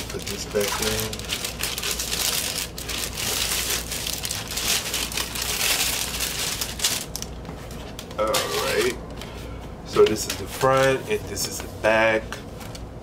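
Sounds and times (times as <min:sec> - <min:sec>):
plastic sleeve crinkling: 0:00.0 - 0:09.0.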